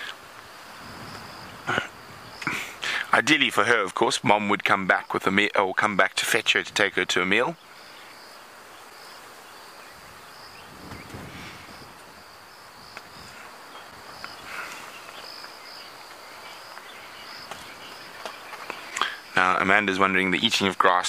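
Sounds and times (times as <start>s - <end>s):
wind gust on microphone: 0.0s - 2.8s, 9.4s - 15.0s
insects chirring: 0.0s - 21.0s.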